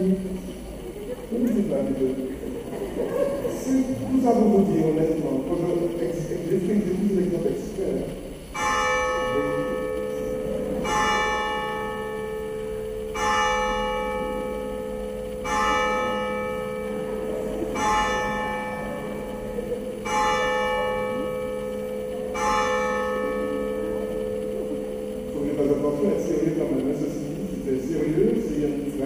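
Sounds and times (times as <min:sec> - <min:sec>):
church bell tolling: 0:08.5 - 0:29.0.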